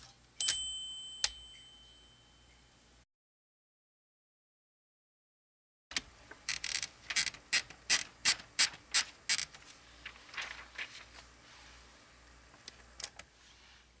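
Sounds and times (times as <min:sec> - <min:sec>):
paper rustle: 0:06.0 - 0:11.8.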